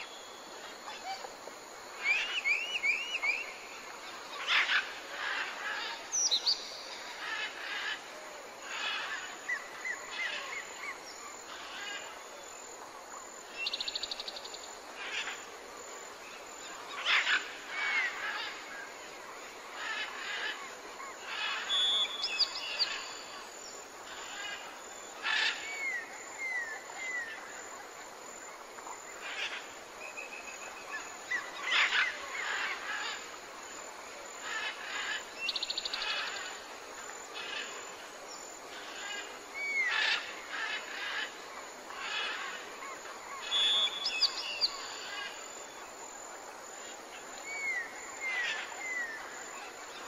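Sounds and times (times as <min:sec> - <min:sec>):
background hiss: 0:00.0 - 0:50.0
birds chirping and trilling: 0:19.7 - 0:27.4, 0:29.2 - 0:33.4, 0:34.4 - 0:36.7, 0:37.4 - 0:45.5, 0:47.4 - 0:50.0.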